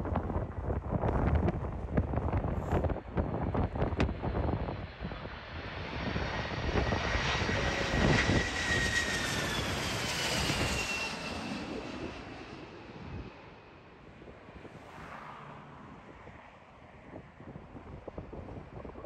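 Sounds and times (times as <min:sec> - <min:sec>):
wind buffeting microphone: 0:00.0 - 0:15.1, 0:15.8 - 0:19.0
jet airliner passing overhead: 0:02.5 - 0:19.0.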